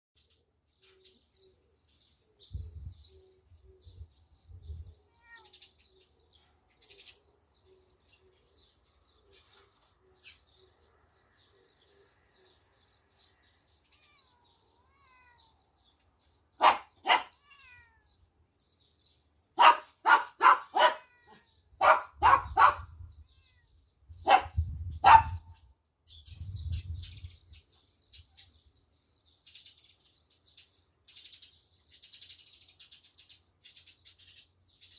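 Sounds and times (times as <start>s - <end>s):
sparrows chirping: 0.2s - 34.9s
sharp dog barks: 16.6s - 17.4s, 19.6s - 21.1s, 21.8s - 22.9s, 24.2s - 25.6s.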